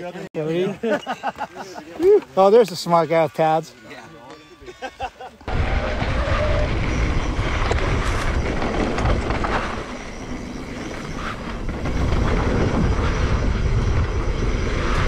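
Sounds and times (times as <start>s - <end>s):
bike rattling over bumps: 5.5s - 15.0s
wind rushing over microphone: 5.5s - 15.0s
tyres crunching on dirt trail: 5.6s - 15.0s.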